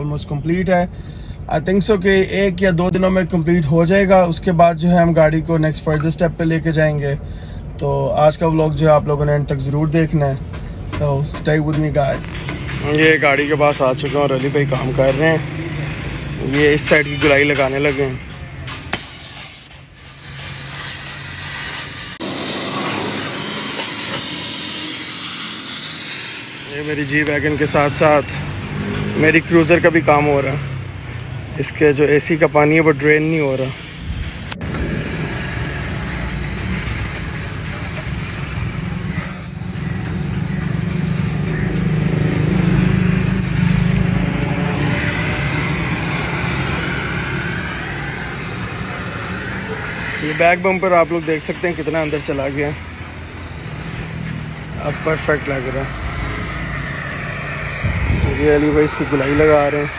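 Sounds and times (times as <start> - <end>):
gas cutting torch hissing: 18.9 - 28.3, 34.6 - 59.9.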